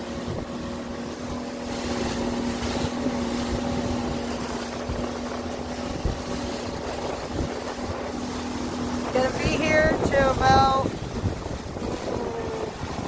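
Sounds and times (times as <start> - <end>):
motorboat engine humming: 0.0 - 13.0
wind and water rushing: 0.0 - 13.0.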